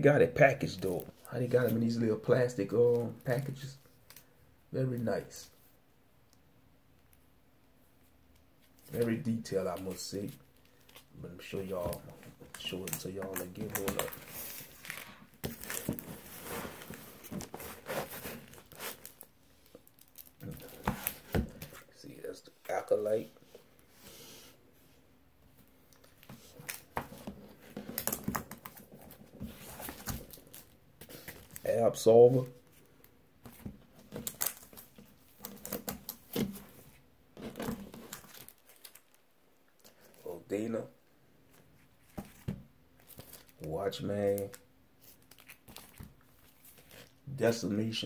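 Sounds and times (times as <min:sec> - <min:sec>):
plastic sleeves crinkling: 0:08.6 - 0:22.0, 0:25.8 - 0:39.2, 0:41.5 - 0:47.3
plastic bags crinkling: 0:10.6 - 0:21.6.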